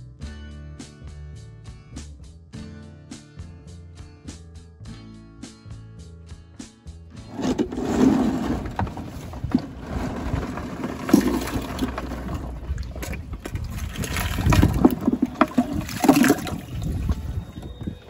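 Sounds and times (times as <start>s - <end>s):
water splashing and sloshing: 7.3s - 18.0s.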